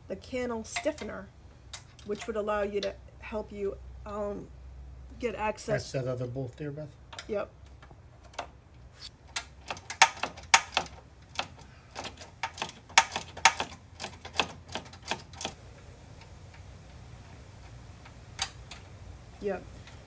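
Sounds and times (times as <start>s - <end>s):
ratchet clicking on a bolt: 9.3s - 15.6s.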